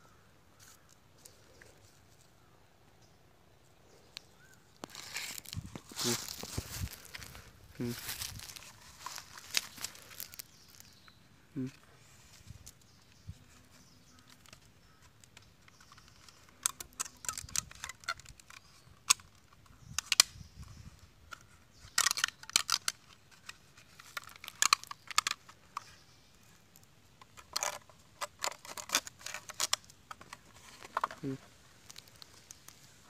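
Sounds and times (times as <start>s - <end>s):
plastic bottle crinkling: 4.4s - 10.9s, 14.2s - 19.5s, 21.3s - 26.0s, 26.7s - 33.0s.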